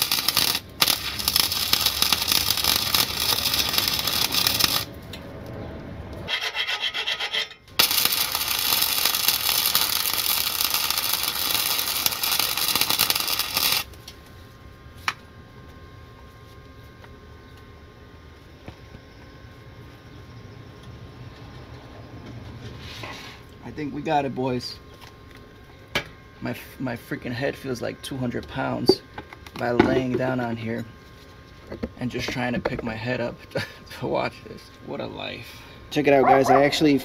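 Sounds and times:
welder arc crackling: 0:00.0 - 0:05.2, 0:07.7 - 0:14.2.

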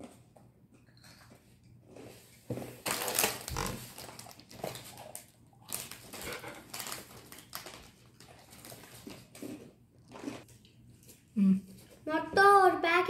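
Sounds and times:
plastic snack packet crinkling: 0:02.8 - 0:11.2.

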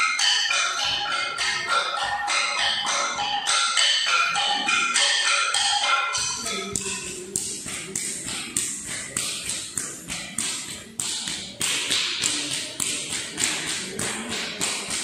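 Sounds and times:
struck percussion dance beat: 0:00.0 - 0:15.0.

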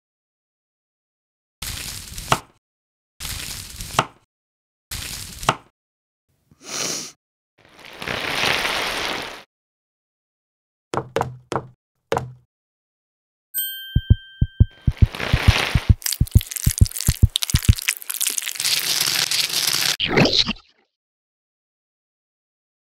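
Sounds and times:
knife tapping cutting board: 0:11.0 - 0:12.4
quick knocks: 0:11.0 - 0:12.4
bright ringing tone: 0:13.6 - 0:14.9.

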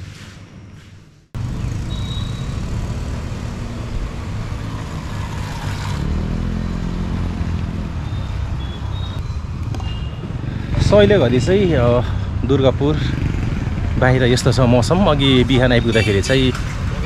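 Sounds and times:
low road noise rumble: 0:00.0 - 0:17.0
motorcycle riding past: 0:01.4 - 0:14.5.

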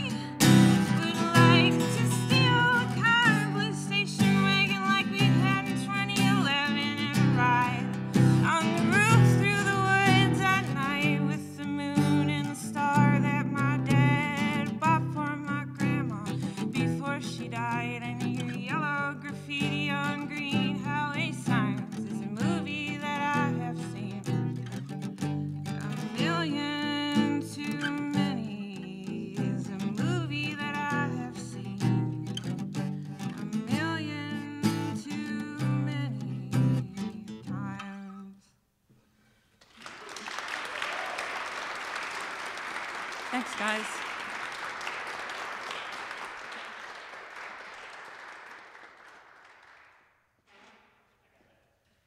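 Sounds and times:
woman singing: 0:00.0 - 0:24.6, 0:25.7 - 0:32.4, 0:33.3 - 0:38.5, 0:43.4 - 0:43.9
acoustic guitar: 0:00.0 - 0:39.6
audience applauding: 0:39.6 - 0:50.2.

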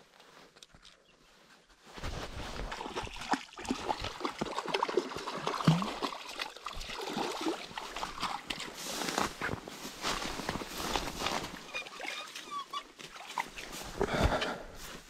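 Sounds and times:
stream water trickling: 0:02.5 - 0:14.0.

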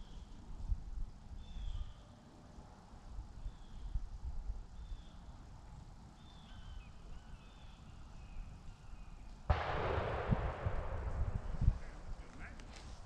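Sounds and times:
shotgun blast with echo: 0:09.5 - 0:12.6.

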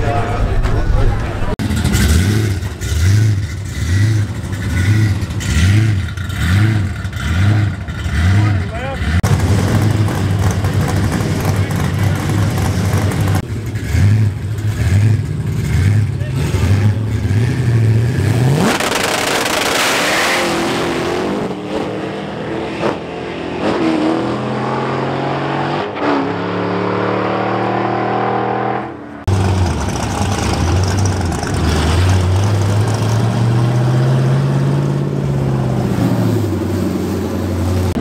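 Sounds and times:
drag car engine accelerating: 0:00.0 - 0:38.0
car engine burbling at low speed: 0:00.1 - 0:19.8.

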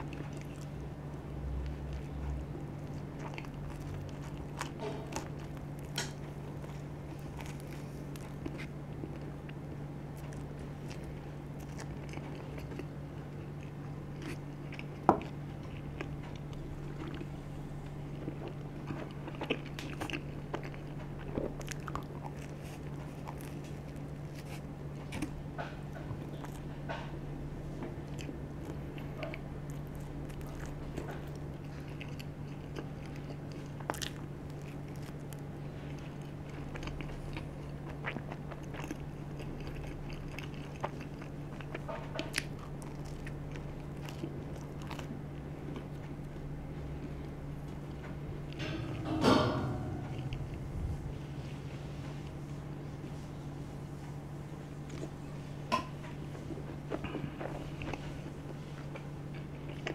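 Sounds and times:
crunchy crust being chewed: 0:00.0 - 0:48.9, 0:49.9 - 0:59.9
low hum: 0:45.7 - 0:55.2.

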